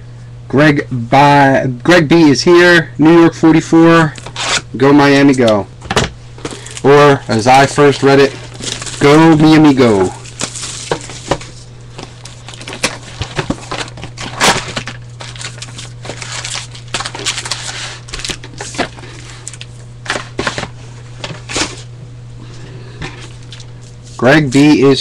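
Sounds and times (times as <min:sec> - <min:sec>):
steady low hum: 0:00.0 - 0:25.0
wrapper crinkling and tearing: 0:04.2 - 0:04.6, 0:06.5 - 0:20.4.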